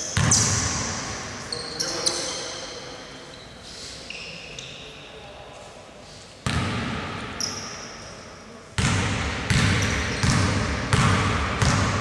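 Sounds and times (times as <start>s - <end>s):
basketball bouncing on hardwood floor: 8.8s - 12.0s.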